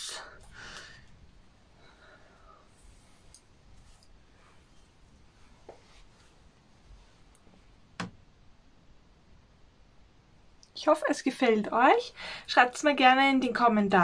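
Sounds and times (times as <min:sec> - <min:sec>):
faint clicks and rustles: 0:02.7 - 0:07.8.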